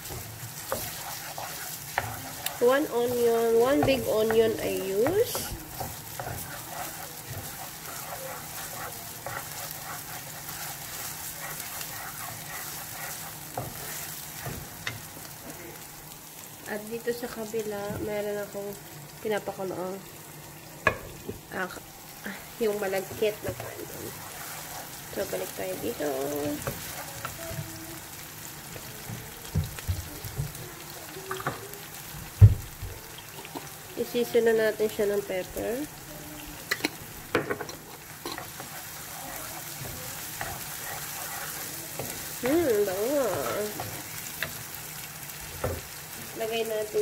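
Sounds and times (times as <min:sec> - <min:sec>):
wooden spatula scraping pan: 0:00.0 - 0:15.3, 0:23.0 - 0:27.6, 0:37.6 - 0:44.6
onion sizzling in oil: 0:00.0 - 0:47.0
spatula knocking against pan: 0:01.9 - 0:10.3.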